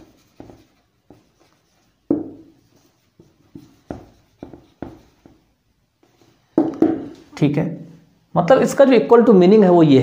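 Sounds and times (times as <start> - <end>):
marker writing on whiteboard: 0.0 - 7.3.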